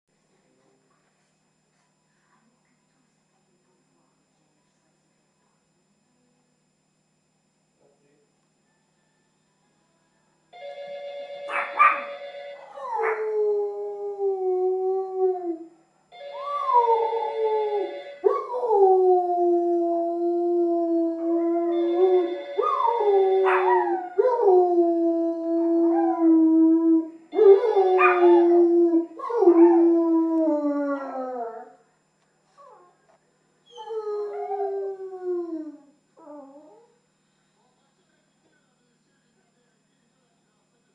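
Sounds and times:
dog howling: 12.6 - 15.6, 16.4 - 31.8.

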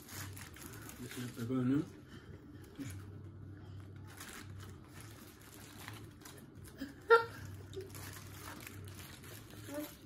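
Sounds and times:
paper wrapping crinkling: 0.0 - 1.8, 3.9 - 10.0
steady low hum: 0.0 - 10.0.

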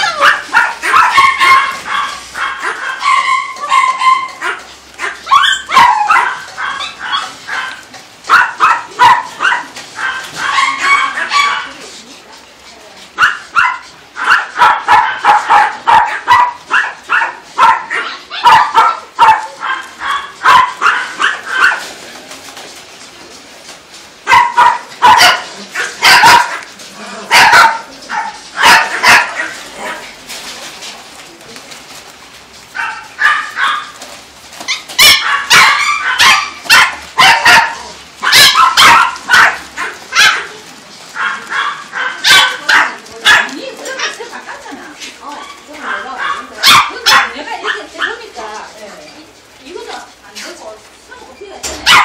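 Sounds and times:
dogs barking: 0.0 - 11.8, 13.2 - 22.0, 24.2 - 30.2, 32.7 - 48.5, 51.7 - 52.0.

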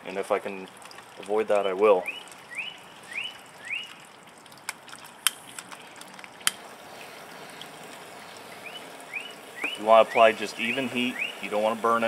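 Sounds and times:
rising bird chirps: 2.0 - 4.1, 8.2 - 11.5.

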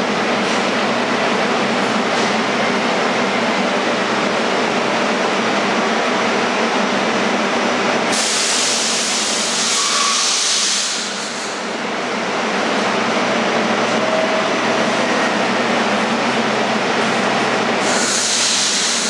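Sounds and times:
subway train humming: 0.0 - 19.0
air brakes hissing: 8.1 - 11.7, 17.8 - 19.0.

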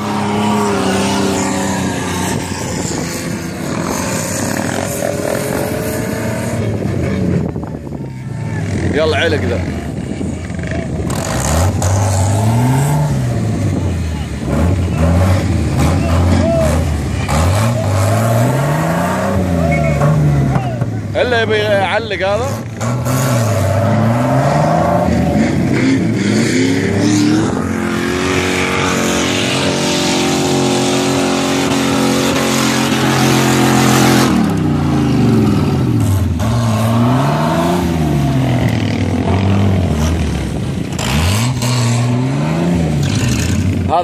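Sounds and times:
engine revving hard: 11.0 - 20.6, 21.7 - 44.0.

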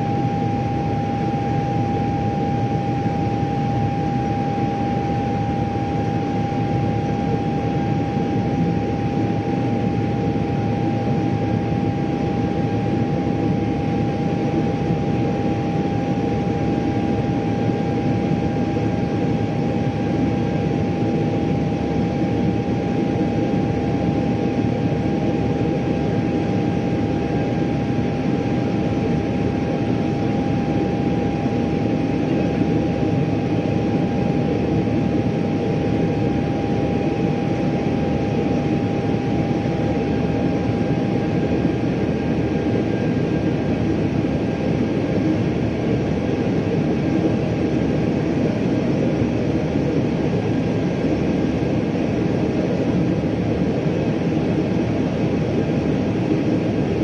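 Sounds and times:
jet engine drone: 0.0 - 57.0
steady whining tone: 0.0 - 57.0.

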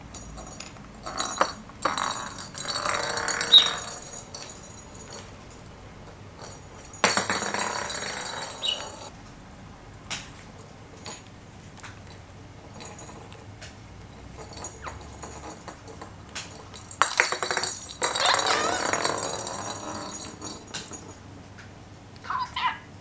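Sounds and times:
bell ball rattling across wood floor: 0.0 - 9.1, 10.5 - 11.4, 12.0 - 21.3
budgerigar chattering and warbling: 22.3 - 22.9.

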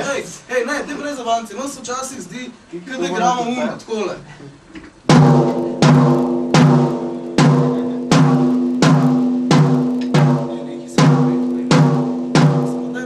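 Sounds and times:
drum struck with ringing tone: 5.1 - 13.0.

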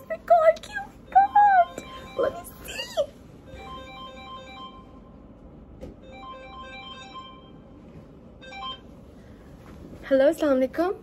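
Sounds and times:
phone ringtone electronic tune: 3.5 - 5.0, 6.0 - 7.6, 8.4 - 8.8.

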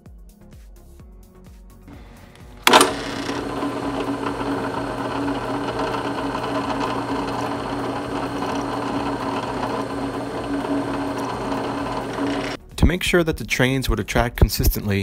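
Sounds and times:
drill press motor whining: 1.9 - 12.6.

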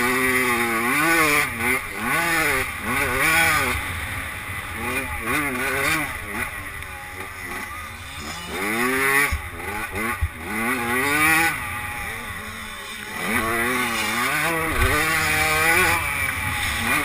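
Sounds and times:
motorbike engine revving: 0.0 - 17.0.

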